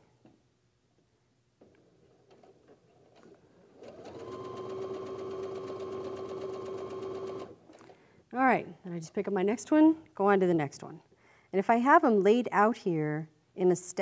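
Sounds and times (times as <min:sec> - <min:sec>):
sewing machine stitching: 0:03.1 - 0:07.9.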